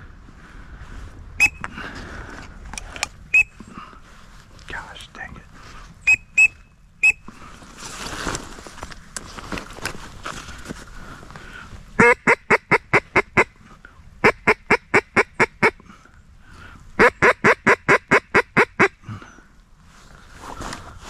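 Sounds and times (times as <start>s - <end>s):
duck call quacks: 12.0s - 13.5s, 14.2s - 15.8s, 17.0s - 19.0s.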